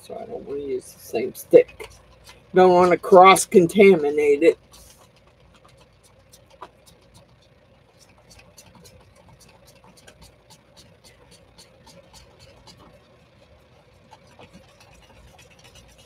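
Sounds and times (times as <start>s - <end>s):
faint steady hum: 0.0s - 16.0s
stick stirring resin in cup: 0.5s - 16.0s.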